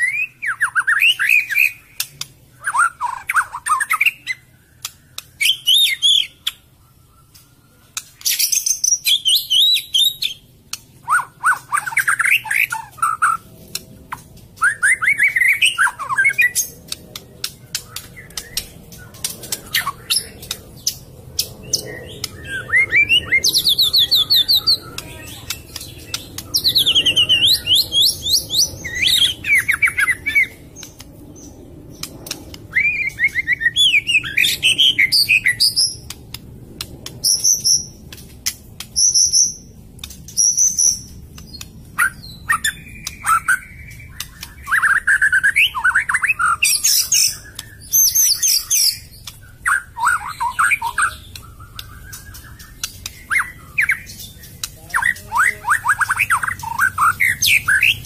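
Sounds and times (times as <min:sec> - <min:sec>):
songbird singing trills: 0:00.0 - 0:58.0
sharp clicks: 0:02.0 - 0:02.4, 0:13.6 - 0:14.6, 0:16.5 - 0:22.4, 0:31.9 - 0:32.7, 0:36.0 - 0:39.0, 0:51.3 - 0:53.3.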